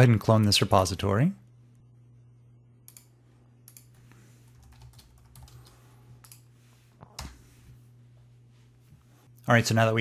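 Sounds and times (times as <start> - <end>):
typing on computer keyboard: 4.5 - 6.4.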